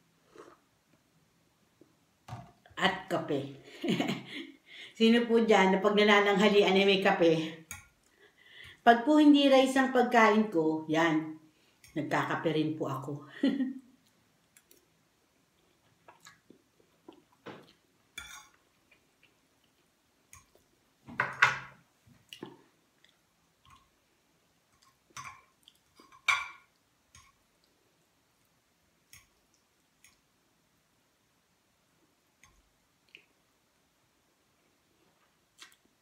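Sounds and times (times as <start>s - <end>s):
chewing: 15.5s - 17.9s, 24.8s - 26.2s
fork clinking and scraping on plate: 18.2s - 18.6s.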